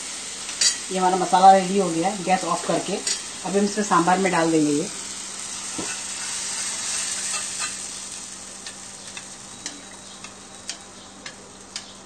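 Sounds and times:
hot oil sizzling: 0:00.0 - 0:12.0
metal spoon clicking on pan: 0:08.6 - 0:12.0.

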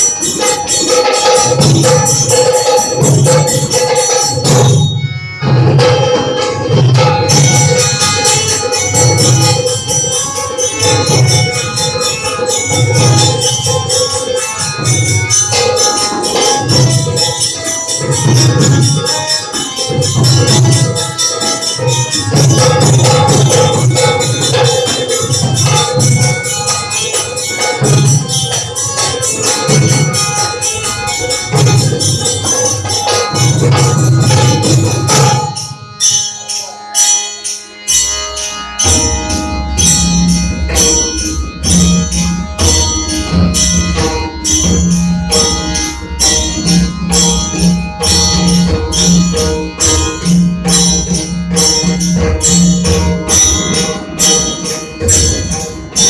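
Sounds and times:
dhol barrel drums: 0:00.0 - 0:56.0
harmonium: 0:00.0 - 0:56.0
tabla and hand drums: 0:00.0 - 0:56.0.

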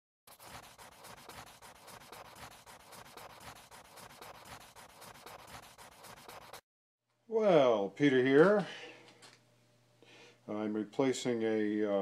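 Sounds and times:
pencil scratching on paper: 0:00.3 - 0:06.6.

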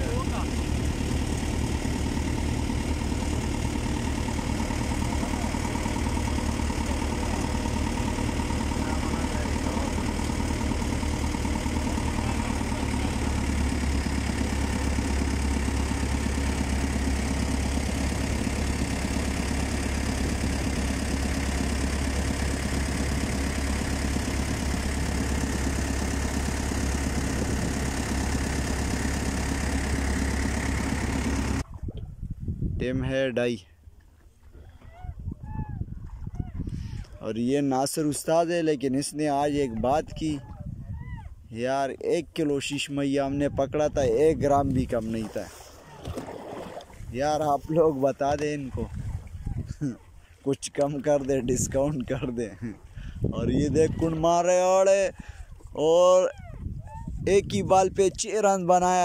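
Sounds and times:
boat engine droning: 0:00.0 - 0:32.1, 0:33.7 - 0:59.0.

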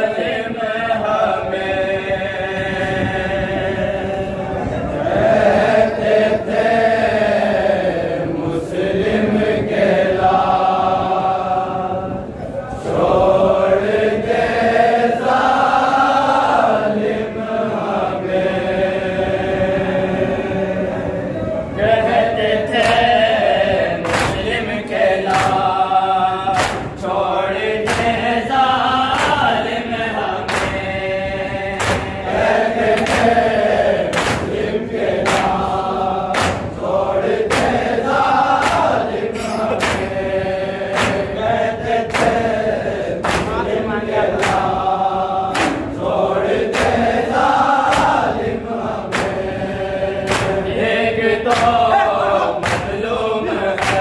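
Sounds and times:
men singing a lament in unison: 0:00.0 - 0:54.0
rhythmic chest-beating strikes: 0:21.8 - 0:54.0.

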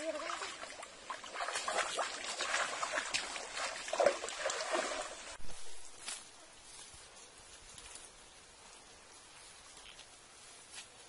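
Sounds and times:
feet wading through water: 0:00.0 - 0:05.4
net dripping water: 0:00.0 - 0:05.4.

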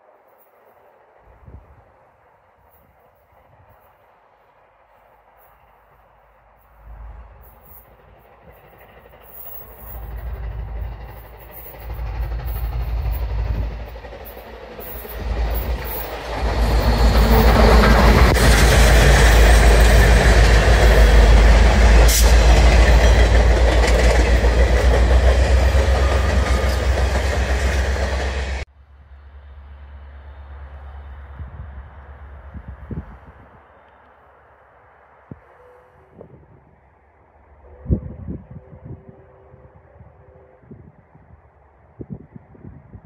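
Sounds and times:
wheels on rail: 0:00.0 - 0:34.4
steam train passing: 0:00.0 - 0:42.7.

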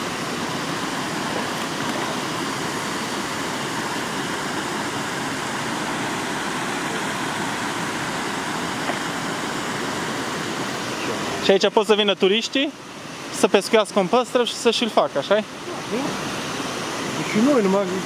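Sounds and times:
rush of running water: 0:00.0 - 0:18.0.

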